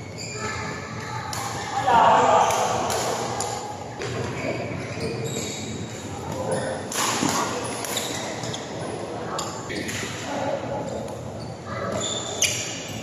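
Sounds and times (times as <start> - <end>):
badminton rackets hitting shuttlecocks: 2.4 - 4.2.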